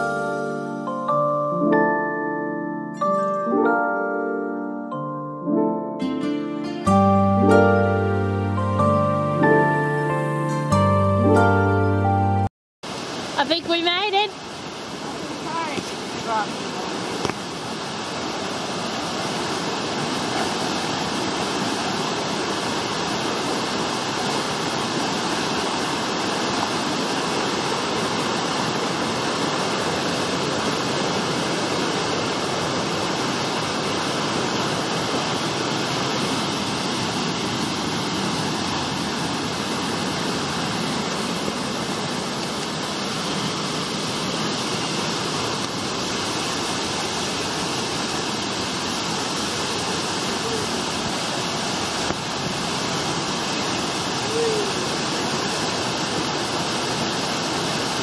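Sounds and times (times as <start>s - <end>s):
river rushing over rocks: 12.9s - 58.0s.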